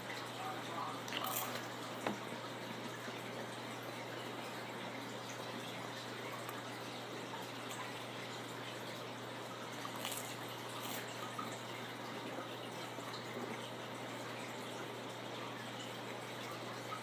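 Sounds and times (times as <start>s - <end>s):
steady hiss and low hum: 0.0s - 17.0s
chewing crackers: 1.1s - 1.7s, 9.8s - 11.2s.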